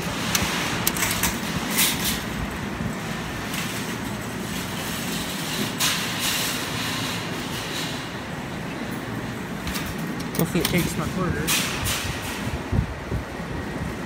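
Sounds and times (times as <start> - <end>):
sharp clicks and clatters: 0.1 - 2.3.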